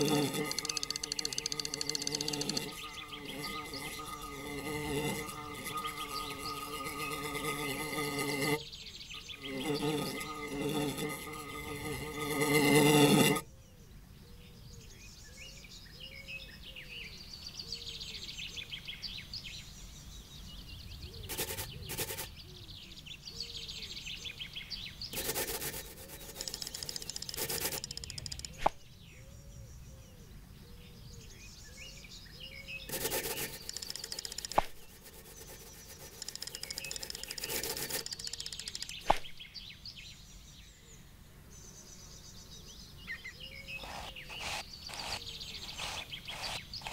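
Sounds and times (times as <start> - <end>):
sharp clicks: 0.0 - 2.9, 26.1 - 28.8, 32.9 - 34.9, 35.9 - 39.3
fly buzzing: 0.0 - 8.6, 9.4 - 13.5, 21.2 - 22.3, 25.2 - 28.7, 32.9 - 39.3, 43.8 - 46.9
birds chirping: 0.0 - 13.6, 14.4 - 41.0, 41.6 - 46.9.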